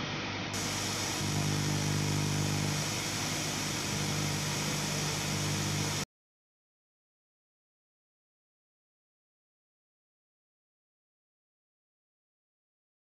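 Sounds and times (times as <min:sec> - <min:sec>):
engine running with rushing hiss: 0:00.5 - 0:06.0.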